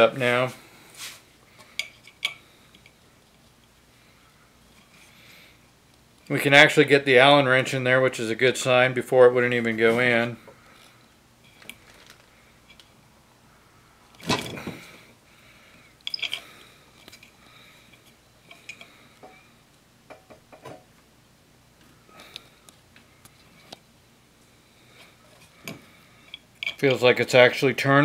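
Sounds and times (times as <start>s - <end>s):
allen wrench clicking and scraping metal: 16.0s - 18.9s, 26.2s - 27.1s.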